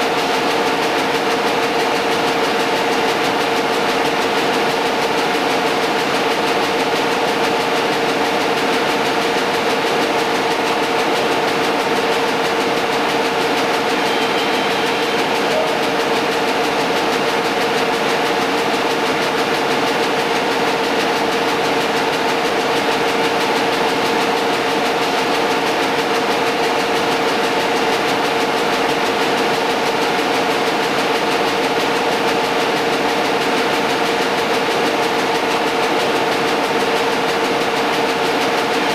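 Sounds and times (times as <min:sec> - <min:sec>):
machine droning: 0:13.1 - 0:18.2.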